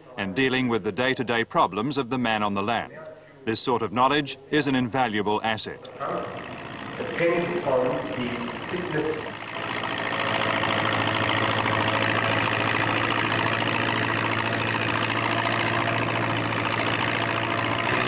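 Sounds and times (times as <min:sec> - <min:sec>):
tractor engine running: 0:05.3 - 0:18.0.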